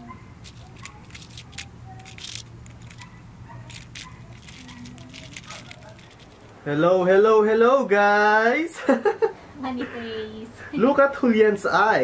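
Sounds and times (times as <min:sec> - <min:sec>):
toy train clicks and scrapes on brick: 0:00.4 - 0:06.6.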